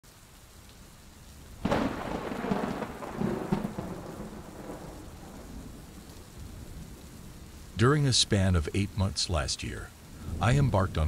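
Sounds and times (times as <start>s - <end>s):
steady rain: 0.0s - 11.0s
thunderclap rumbling: 1.6s - 7.9s, 10.0s - 11.0s.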